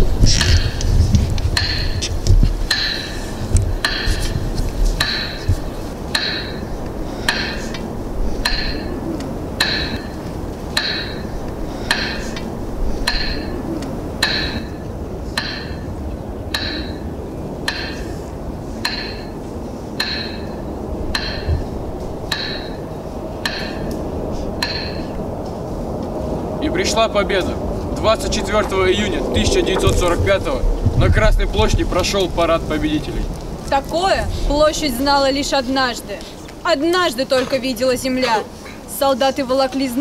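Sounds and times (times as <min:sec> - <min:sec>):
metronome ticking: 0:01.6 - 0:19.4, 0:20.0 - 0:25.2.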